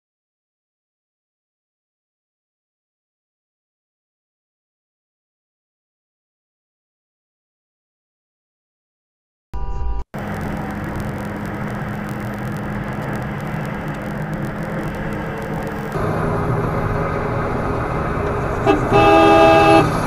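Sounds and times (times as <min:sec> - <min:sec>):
car horn: 0:09.6 - 0:10.0, 0:18.6 - 0:20.0
car road and engine noise: 0:09.6 - 0:20.0.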